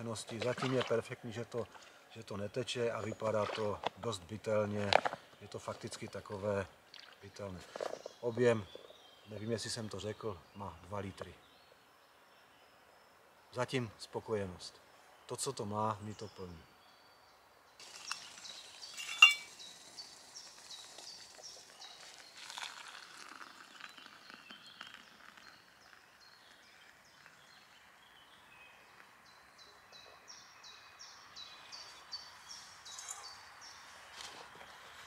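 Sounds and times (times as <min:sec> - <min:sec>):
hot water pouring into a cup: 0:17.8 - 0:28.0
metal pot lid clinking: 0:19.0 - 0:19.5.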